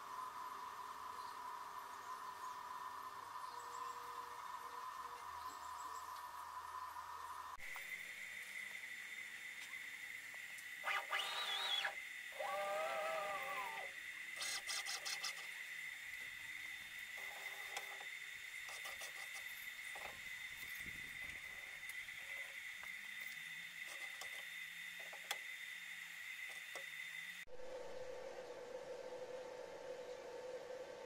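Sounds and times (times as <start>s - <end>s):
stepper motors whining: 9.6s - 31.0s
steady high-pitched tone: 27.4s - 31.0s.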